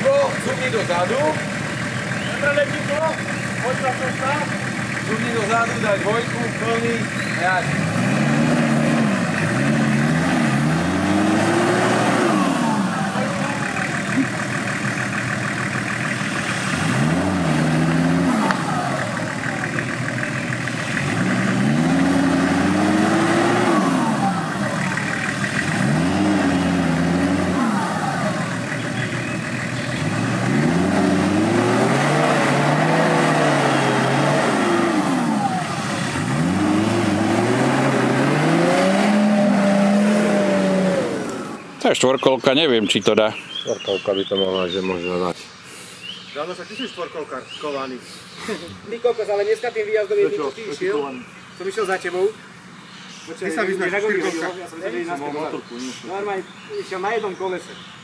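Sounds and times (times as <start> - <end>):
engine revving: 0.0 - 43.2.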